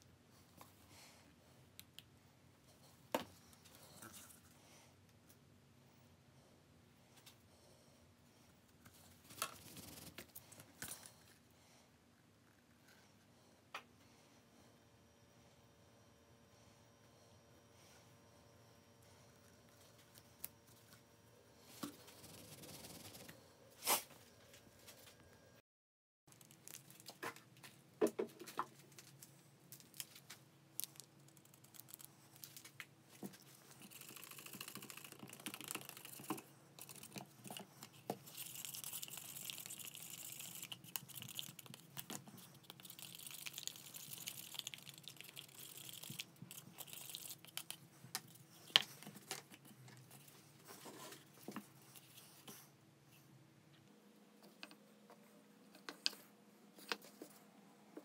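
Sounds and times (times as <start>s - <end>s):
faint steady hum: 0.0s - 25.6s, 26.3s - 58.0s
stir stick scraping inside paper cup: 33.6s - 47.9s.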